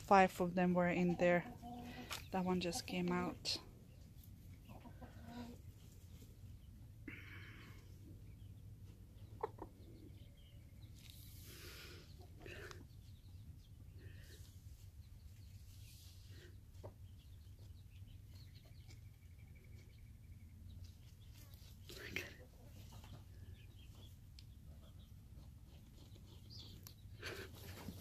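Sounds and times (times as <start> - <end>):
chickens clucking low: 8.2 - 10.7
chickens scratching in dust: 14.2 - 28.0.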